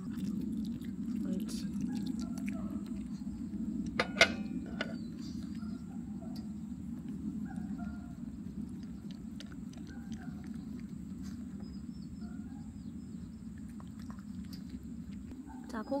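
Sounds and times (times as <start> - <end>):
dog licking and lip smacking: 0.0 - 3.3, 8.6 - 11.7, 13.6 - 15.4
low hum: 0.0 - 16.0.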